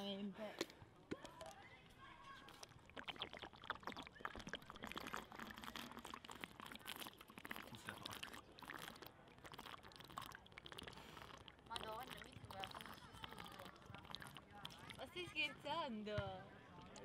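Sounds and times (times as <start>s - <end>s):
liquid glugging in bottle: 2.3s - 15.4s
person gulping: 2.5s - 15.0s.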